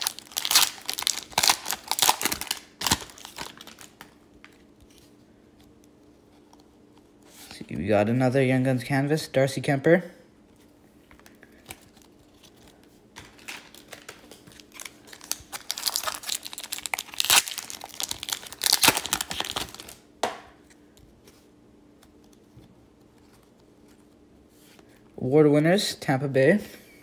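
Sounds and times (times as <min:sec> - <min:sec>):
foil wrapper tearing and crinkling: 0:00.0 - 0:04.6, 0:13.2 - 0:20.0.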